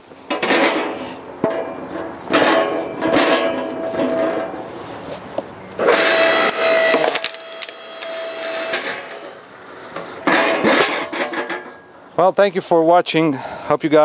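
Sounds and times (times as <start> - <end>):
log splitter motor whining: 1.8 - 10.2
wood cracking and splintering: 5.9 - 8.1.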